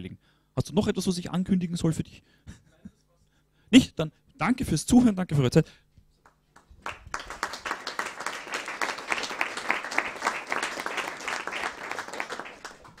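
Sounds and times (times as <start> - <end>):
audience applauding: 6.6 - 13.0.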